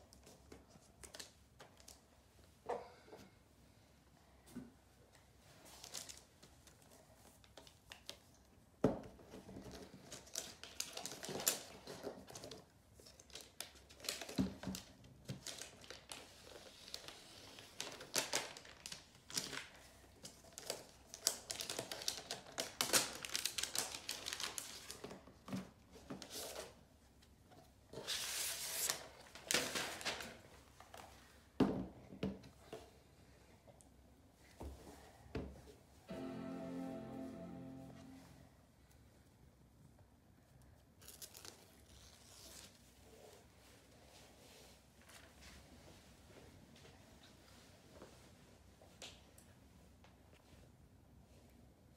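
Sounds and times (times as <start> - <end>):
packaging rustling and tearing: 9.7 - 25.2, 41.0 - 42.8.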